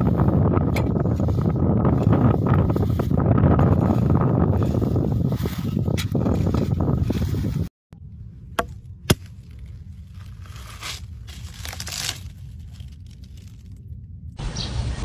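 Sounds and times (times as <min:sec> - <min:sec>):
wind on microphone: 0:00.0 - 0:08.4
watermelon rind cracking: 0:09.1 - 0:13.9
wet tearing of fruit flesh: 0:09.2 - 0:13.8.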